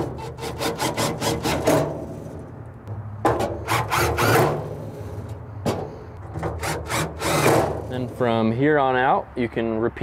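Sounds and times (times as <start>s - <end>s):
drill driving screws into metal: 3.6s - 4.6s, 6.4s - 7.9s.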